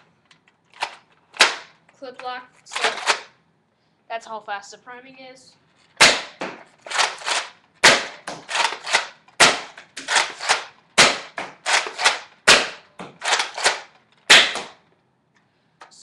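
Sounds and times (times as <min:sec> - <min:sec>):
toy blaster firing: 0:00.8 - 0:01.7, 0:02.7 - 0:03.3, 0:06.0 - 0:14.8.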